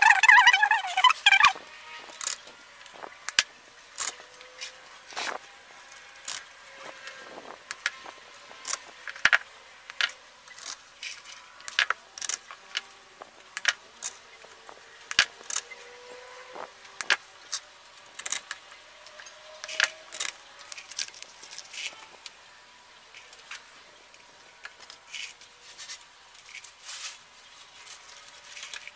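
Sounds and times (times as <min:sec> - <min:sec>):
artificial fern sprays rustling: 0:25.0 - 0:28.9.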